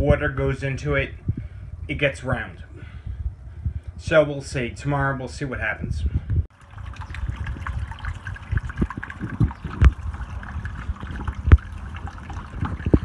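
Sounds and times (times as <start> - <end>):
water splashing into pool: 6.5 - 13.0
low thumps: 8.5 - 13.0.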